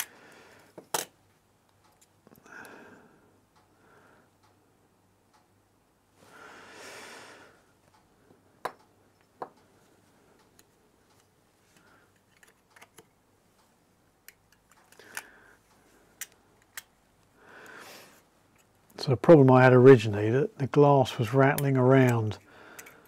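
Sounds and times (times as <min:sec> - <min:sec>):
small metal parts clicking: 0:22.2 - 0:23.0.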